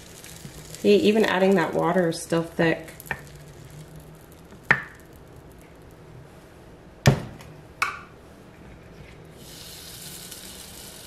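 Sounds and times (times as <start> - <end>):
batter sizzling: 0.0 - 6.6, 9.2 - 11.0.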